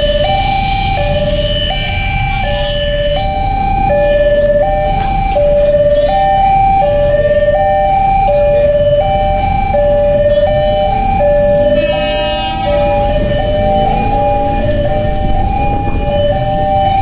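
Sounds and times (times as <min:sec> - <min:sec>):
level crossing two-tone alarm: 0:00.0 - 0:17.0
road traffic rumble: 0:00.0 - 0:17.0
harsh blast: 0:10.9 - 0:17.0.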